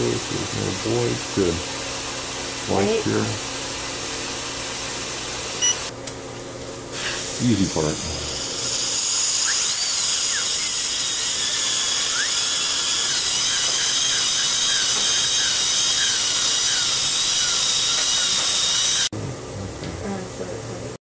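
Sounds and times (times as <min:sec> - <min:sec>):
dental drill whining: 0:02.4 - 0:03.4, 0:04.8 - 0:05.9, 0:07.0 - 0:19.1.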